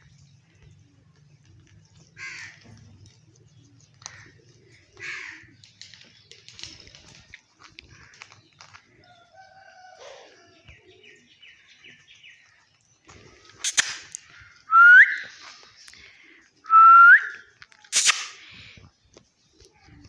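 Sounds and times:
sharp click: 13.6 - 14.2, 17.9 - 18.4.

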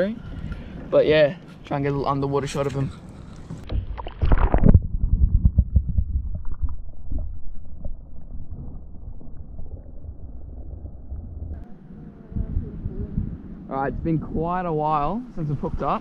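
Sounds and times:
muffled underwater rumbling: 3.1 - 16.0
camera splashing into water: 3.7 - 4.9.

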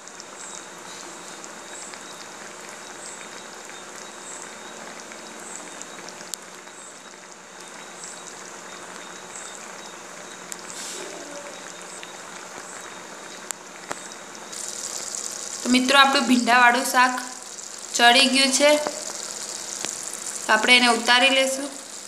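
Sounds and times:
gravy bubbling hiss: 0.0 - 22.0
bubbles bursting clicks: 10.5 - 22.0.

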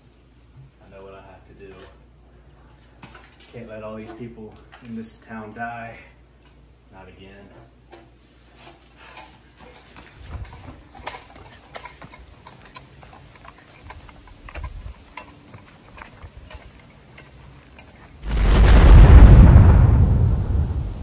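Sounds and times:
faint clicks and knocks: 9.2 - 18.2
loud deep explosion boom: 18.2 - 21.0.

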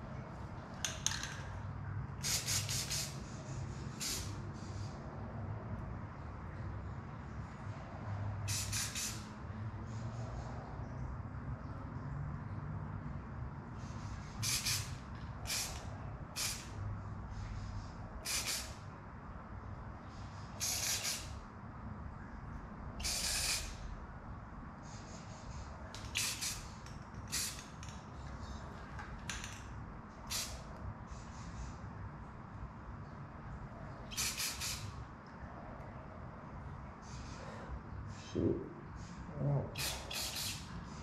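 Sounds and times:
spray paint can hissing: 2.2 - 4.9, 8.5 - 9.3, 13.8 - 16.8, 18.2 - 18.8, 20.6 - 21.4, 23.0 - 23.8, 24.9 - 28.0, 30.3 - 31.5, 34.1 - 35.0, 39.8 - 41.0.

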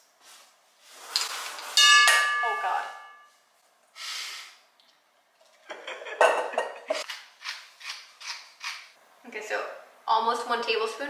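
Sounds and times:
short hiss: 4.0 - 4.6.

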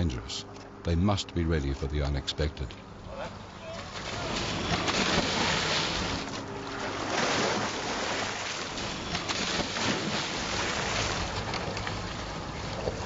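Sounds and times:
boat engine hum: 0.0 - 13.0
sea water washing: 2.9 - 13.0.

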